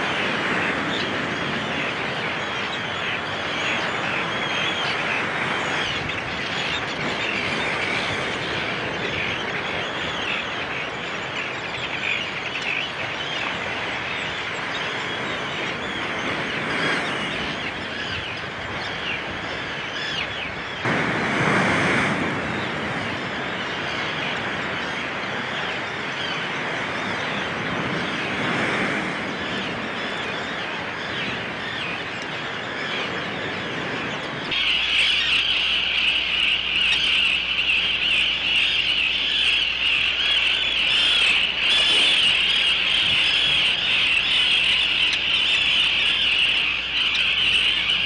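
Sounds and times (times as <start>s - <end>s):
terns calling: 0.0s - 20.9s, 22.4s - 48.0s
surf washing over rocks: 20.8s - 31.0s.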